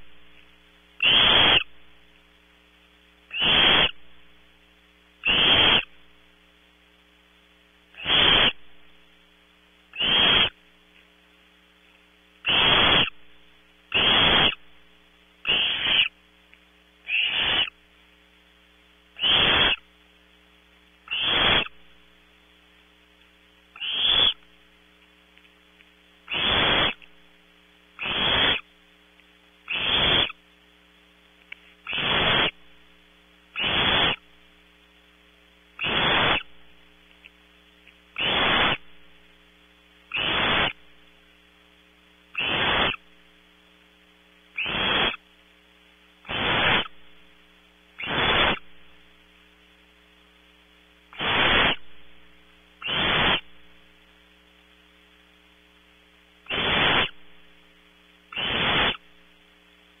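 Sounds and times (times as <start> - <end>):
electrical mains hum: 0.0 - 60.0
owl nestlings hissing calls: 1.0 - 1.8, 3.3 - 4.0, 5.2 - 6.0, 7.9 - 8.7, 9.9 - 10.6, 12.4 - 13.2, 13.9 - 14.7, 15.4 - 16.2, 17.0 - 17.8, 19.1 - 19.9, 21.0 - 21.8, 23.8 - 24.5, 26.2 - 27.1, 28.0 - 28.7, 29.6 - 30.4, 31.8 - 32.6, 33.5 - 34.3, 35.8 - 36.6, 38.1 - 38.9, 40.1 - 40.8, 42.3 - 43.1, 44.5 - 45.2, 46.2 - 47.0, 48.0 - 48.8, 51.1 - 51.9, 52.8 - 53.5, 56.4 - 57.3, 58.3 - 59.1.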